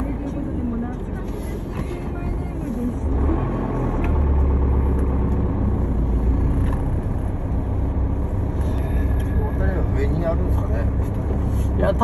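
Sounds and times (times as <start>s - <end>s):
vehicle engine and road rumble: 0.0s - 12.0s.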